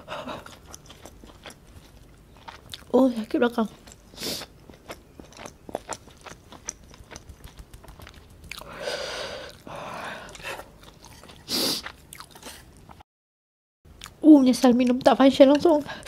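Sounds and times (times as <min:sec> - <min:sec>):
wet chewing clicks: 0:00.3 - 0:13.0
breathy exhale: 0:08.6 - 0:10.6.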